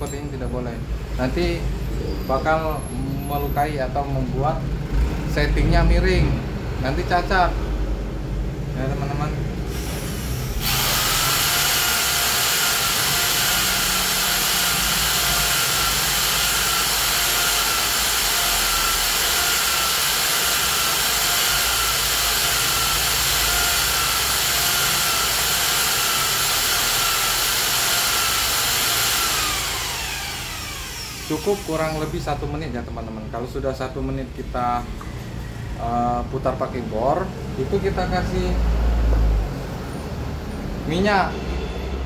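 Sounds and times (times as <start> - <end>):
valve grinding against seat: 9.7 - 32.3
electric drill whining: 9.7 - 32.6.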